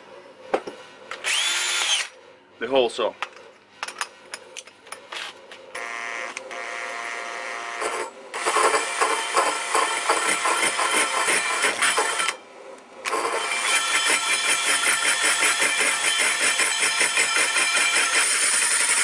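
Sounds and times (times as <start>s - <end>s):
cordless drill motor whine: 1.2s - 2.2s, 5.8s - 10.1s.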